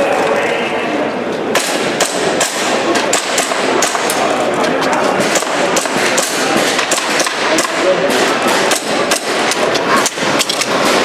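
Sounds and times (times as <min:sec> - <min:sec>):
crowd hubbub: 0:00.0 - 0:11.0
airsoft pistol firing: 0:01.5 - 0:04.1, 0:05.2 - 0:09.6.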